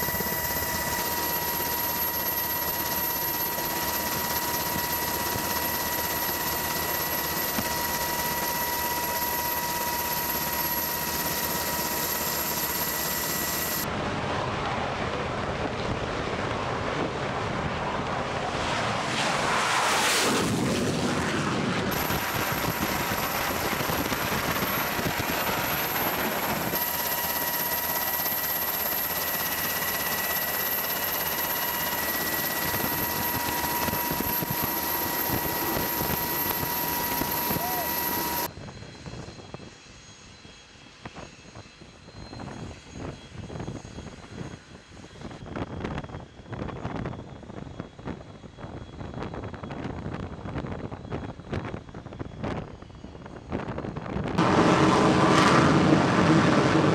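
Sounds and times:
jet aircraft noise: 0.0s - 39.2s, 51.2s - 56.9s
jet whine: 0.0s - 56.9s
jet drone launching past: 13.3s - 27.5s, 54.4s - 56.9s.

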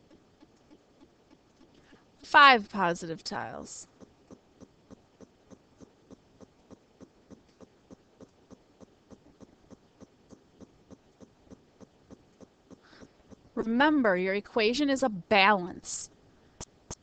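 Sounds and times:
faint ticking: 3.3s - 13.6s.

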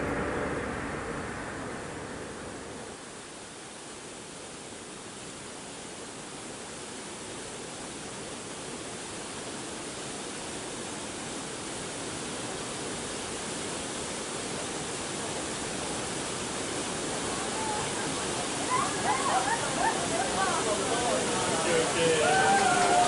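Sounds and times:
steady rushing noise: 0.0s - 6.2s, 10.3s - 23.0s.

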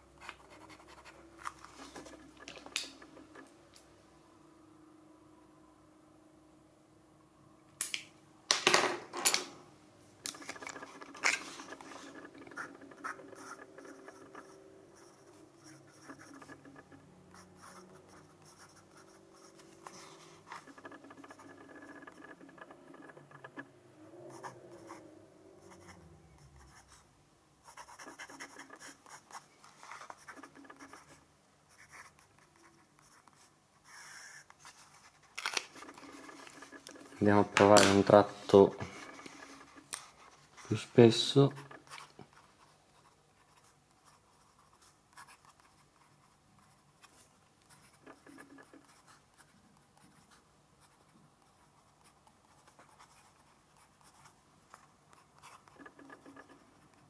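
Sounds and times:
pen nib scratching paper: 0.2s - 3.4s, 10.3s - 26.0s, 27.6s - 57.0s
pen handling clicks and knocks: 7.8s - 9.6s, 10.2s - 12.4s, 35.4s - 38.2s.

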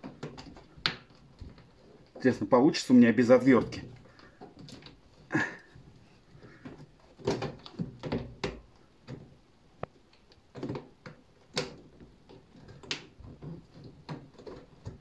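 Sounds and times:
rubber seal rubbing and scraping: 0.0s - 2.5s, 10.4s - 15.0s.

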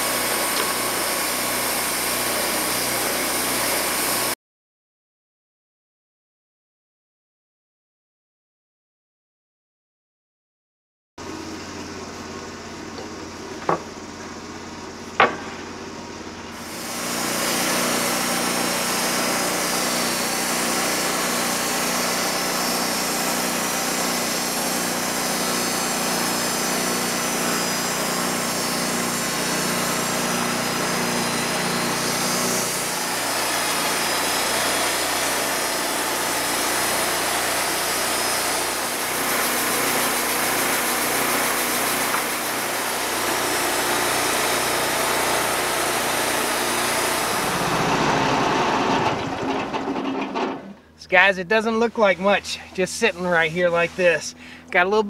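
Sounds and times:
band sawmill cutting log: 0.0s - 4.4s, 11.2s - 55.0s
sharp knocks: 13.6s - 13.9s, 15.2s - 15.8s.

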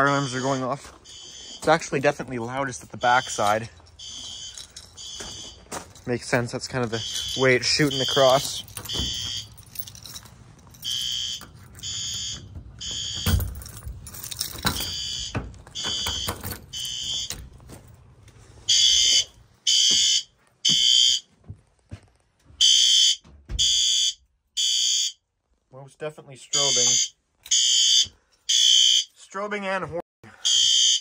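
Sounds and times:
fire alarm horn blasts: 0.0s - 1.8s, 3.0s - 5.6s, 7.0s - 9.5s, 10.8s - 13.4s, 14.8s - 17.4s, 18.7s - 21.3s, 22.6s - 25.2s, 26.5s - 29.1s, 30.4s - 31.0s.

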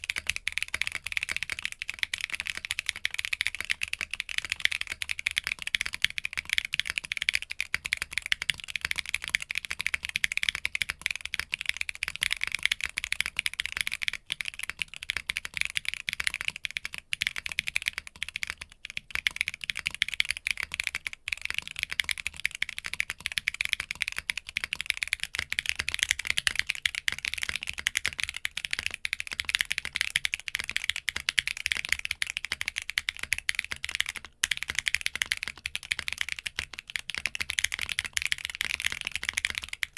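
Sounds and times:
fast typing on mechanical keyboard: 0.0s - 39.9s.

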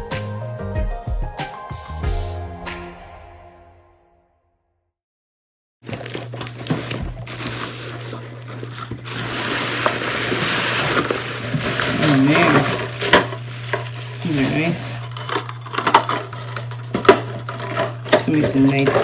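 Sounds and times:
packing paper crackling: 5.8s - 19.0s
cardboard box tearing: 5.9s - 15.2s.

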